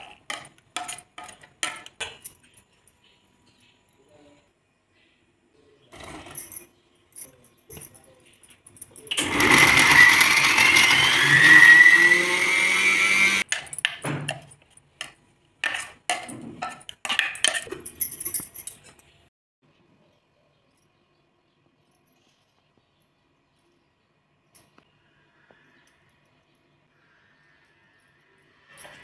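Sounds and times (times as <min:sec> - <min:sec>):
mixer grinder motor whine: 0:09.2 - 0:13.4.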